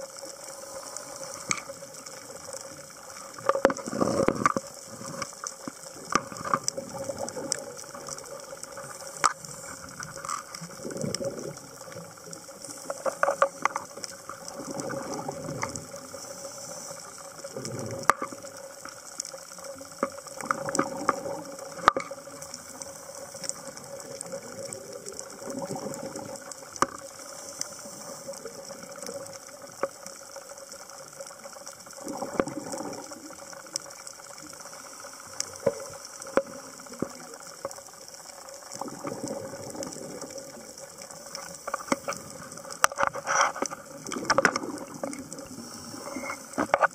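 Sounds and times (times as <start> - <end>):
sharp clicks and crackles: 0.0 - 46.9
diver exhaling bubbles underwater: 3.6 - 5.2, 6.0 - 8.4, 10.6 - 12.1, 14.4 - 16.2, 17.5 - 18.5, 20.4 - 22.4, 23.7 - 26.6, 32.0 - 33.4, 38.7 - 40.7, 43.3 - 46.9.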